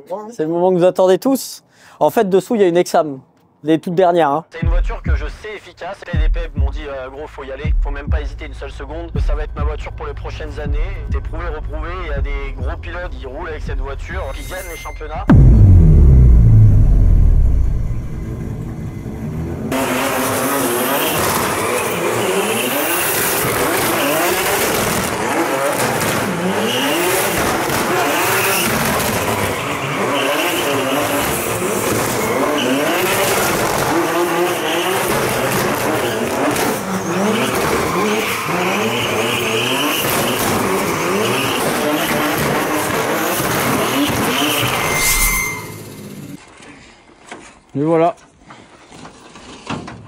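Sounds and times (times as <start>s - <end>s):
car engine revving: 15.3s - 44.8s.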